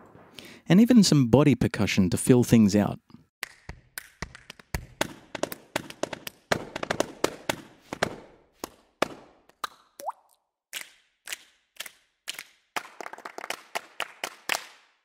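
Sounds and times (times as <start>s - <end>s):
hand claps and finger snaps: 3.4s - 9.8s, 10.8s - 15.0s.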